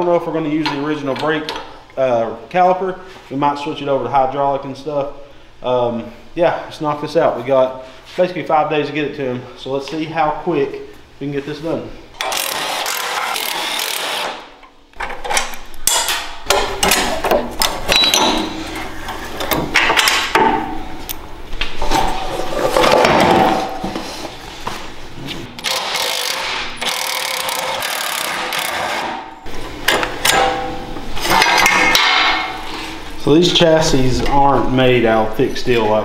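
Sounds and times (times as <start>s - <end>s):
cordless impact tools running: 12.2s - 14.5s, 25.6s - 29.2s
metal parts knocking and clinking: 15.0s - 21.2s.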